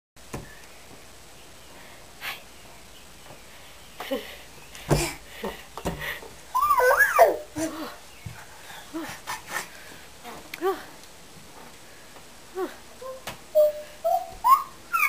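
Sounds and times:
baby squealing: 6.6 - 7.5, 13.0 - 15.0.

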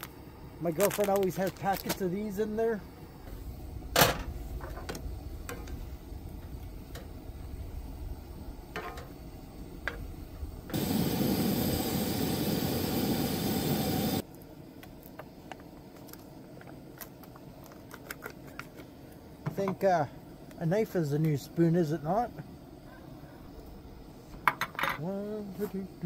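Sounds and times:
meat sizzling in a skillet: 10.7 - 14.2.

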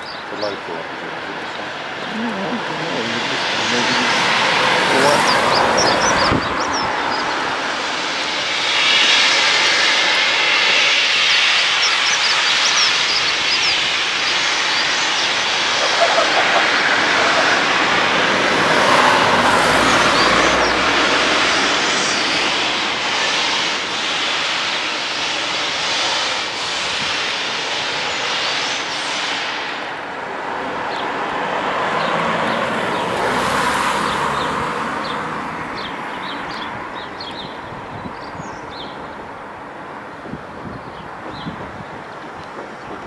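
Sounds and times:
steam locomotive hissing: 0.3 - 31.0.

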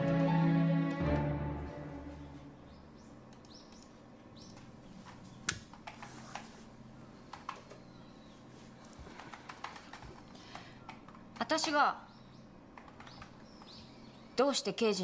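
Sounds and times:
background music: 0.0 - 2.9.

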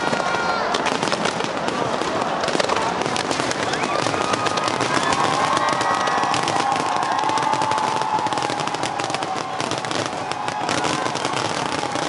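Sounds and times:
fireworks crackling and popping: 0.0 - 12.0.

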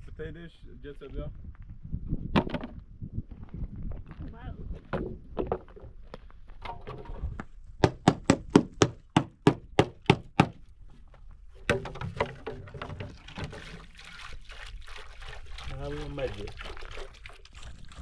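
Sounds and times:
sharp knocks: 7.8 - 10.6, 11.6 - 13.5.

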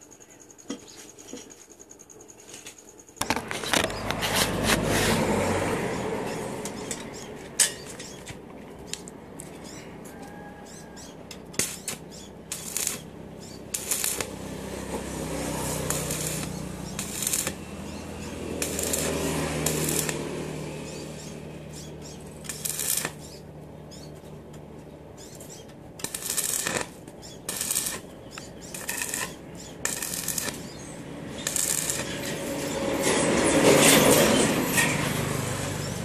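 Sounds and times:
welding arc crackling: 10.6 - 24.2, 25.2 - 36.0.

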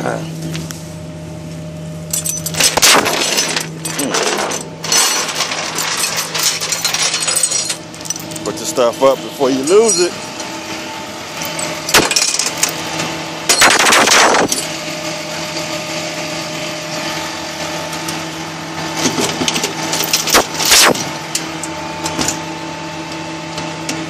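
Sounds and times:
engine hum: 0.0 - 24.0
chains rattling into metal bin: 2.1 - 8.7, 9.5 - 10.2, 11.4 - 12.8, 13.5 - 14.7, 19.9 - 21.0.

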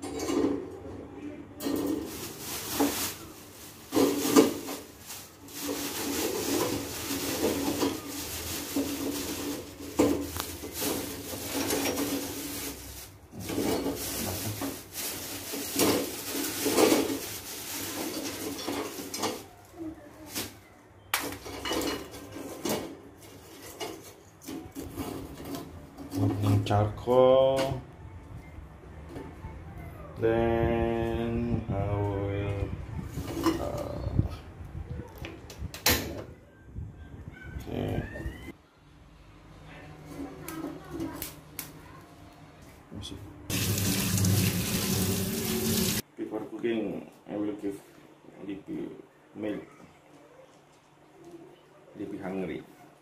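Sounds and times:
charcoal clattering on metal: 1.6 - 19.5
plastic bag rustling: 1.6 - 20.6, 43.5 - 46.0.

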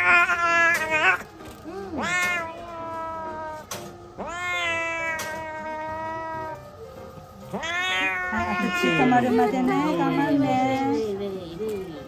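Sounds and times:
kitten meowing in distress: 1.9 - 6.6, 7.5 - 9.3.

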